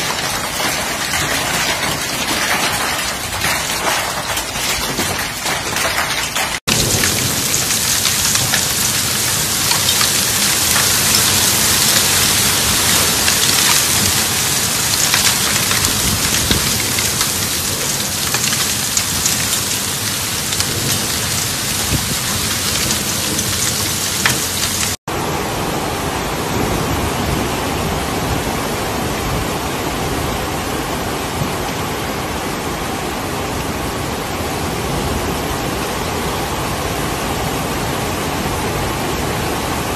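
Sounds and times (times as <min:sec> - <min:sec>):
hail and heavy rain pelting: 0:00.0 - 0:25.0.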